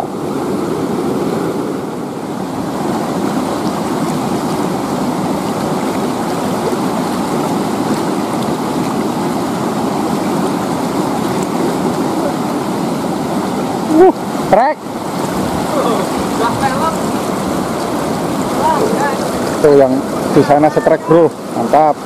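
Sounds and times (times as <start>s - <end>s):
river water rushing over boulders: 0.0s - 22.0s.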